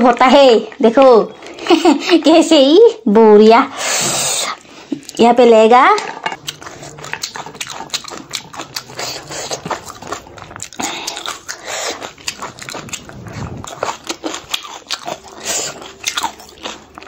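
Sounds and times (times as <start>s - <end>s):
chewing and lip-smacking: 6.4s - 17.0s.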